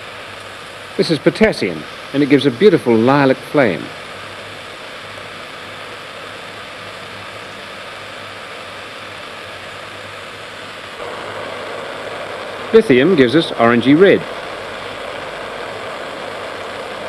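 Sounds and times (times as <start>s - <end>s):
gas burner flame hissing: 0.0s - 17.0s
low hum: 10.1s - 17.0s.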